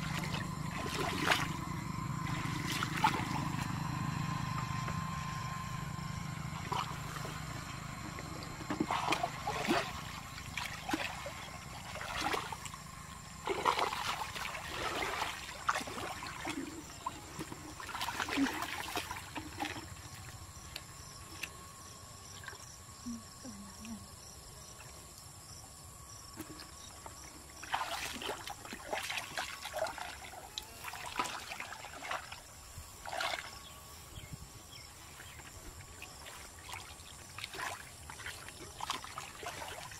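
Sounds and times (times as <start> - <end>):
muddy water splashing: 0.0 - 4.8, 6.4 - 21.5, 26.4 - 33.6, 35.0 - 39.9.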